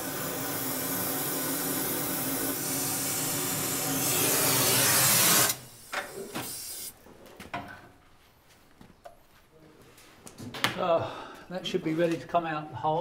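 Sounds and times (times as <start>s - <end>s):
gas torch flame hissing: 0.0s - 7.0s.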